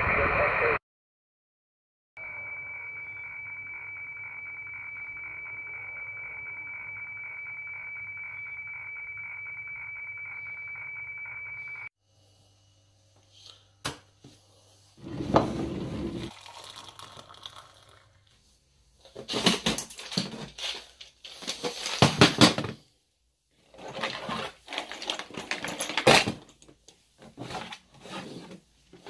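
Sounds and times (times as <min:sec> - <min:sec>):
objects rustling and clattering: 0:19.0 - 0:22.8, 0:23.6 - 0:29.0.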